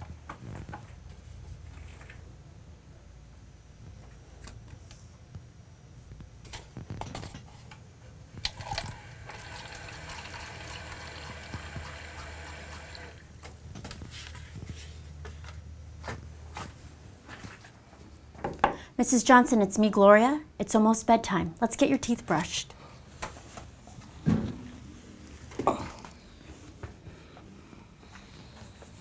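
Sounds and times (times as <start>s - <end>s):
faucet running into a cup: 8.4s - 13.3s.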